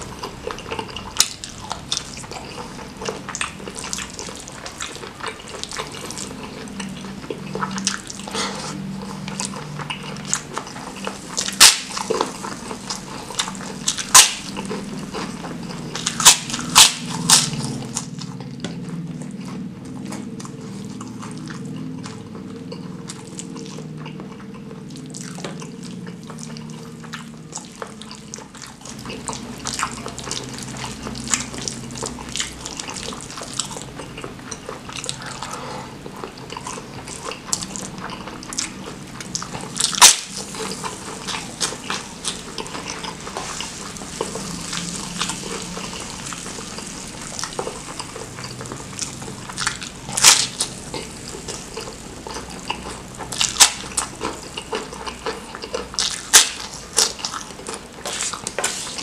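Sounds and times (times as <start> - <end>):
wet chewing and smacking: 0.0 - 59.0
sharp crunching bites: 11.4 - 18.8, 36.7 - 58.6.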